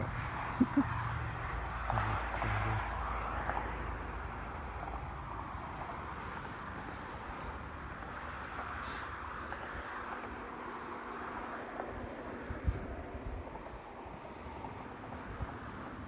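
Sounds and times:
low traffic rumble: 0.0 - 16.0.

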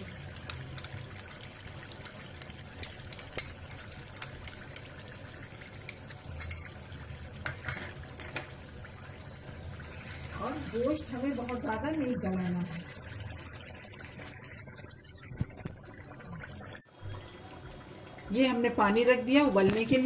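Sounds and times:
oil simmering in frying pan: 0.0 - 20.0.

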